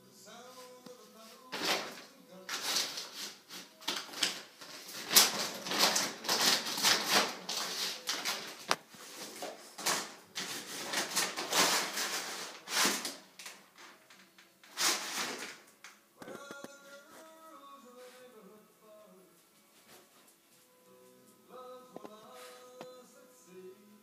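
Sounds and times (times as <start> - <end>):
dog food bag crinkling: 1.5 - 15.6.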